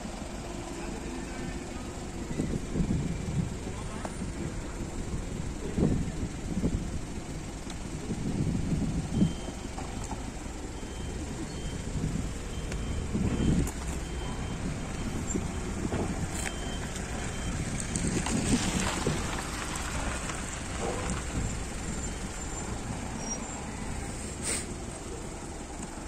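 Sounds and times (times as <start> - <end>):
even hiss: 24.0 - 24.8.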